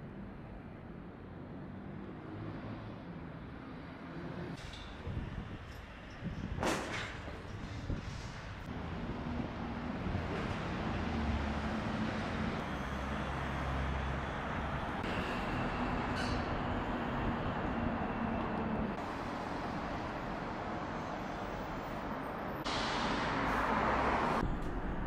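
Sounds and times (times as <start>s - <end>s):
passing cars road noise: 1.0s - 5.6s, 7.5s - 25.0s.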